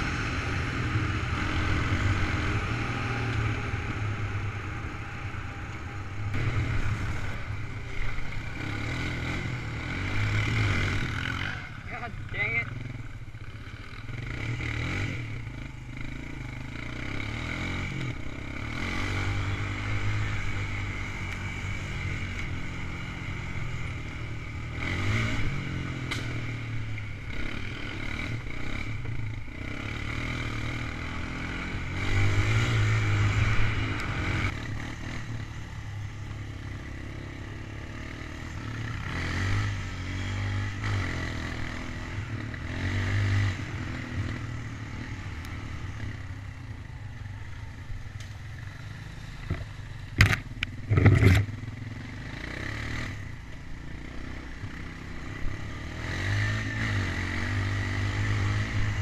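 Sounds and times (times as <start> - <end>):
quad bike engine running: 0.0 - 59.0.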